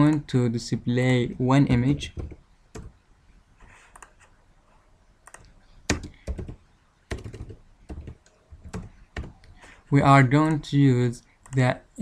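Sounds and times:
computer keyboard keystrokes: 0:05.3 - 0:09.3.

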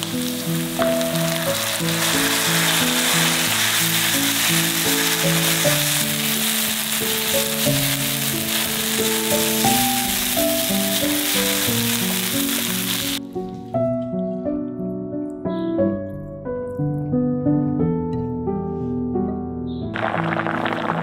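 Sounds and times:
vegetables sizzling in frying pan: 0:00.0 - 0:13.2
background music: 0:00.0 - 0:21.0.

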